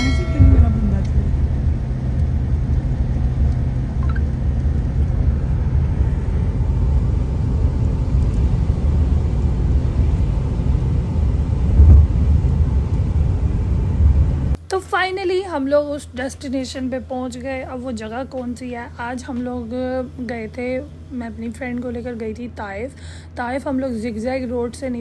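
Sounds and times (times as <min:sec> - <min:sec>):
car road rumble inside cabin: 0:00.0 - 0:14.6.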